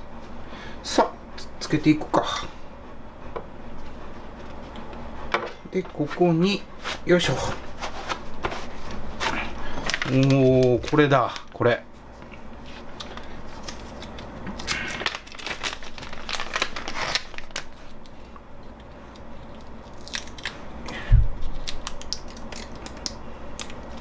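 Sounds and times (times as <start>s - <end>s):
plastic bag crinkling: 9.6s - 11.6s, 12.9s - 18.3s.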